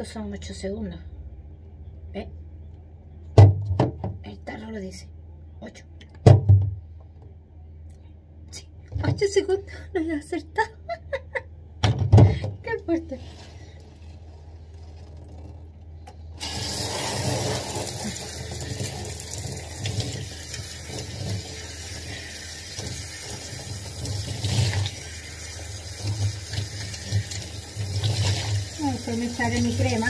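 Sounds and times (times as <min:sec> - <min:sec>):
shower spraying water on hair: 0:16.4 - 0:30.0.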